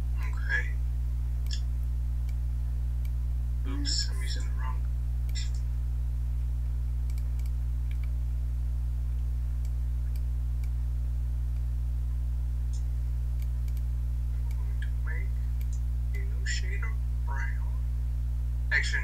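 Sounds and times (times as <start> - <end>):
steady low hum: 0.0 - 19.0
computer mouse clicks: 7.1 - 8.2, 12.7 - 13.9.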